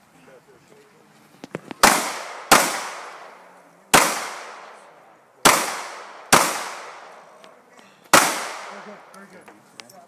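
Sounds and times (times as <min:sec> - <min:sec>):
handgun shots with echo: 0:01.8 - 0:03.3, 0:03.9 - 0:04.8, 0:05.4 - 0:07.1, 0:08.1 - 0:09.0.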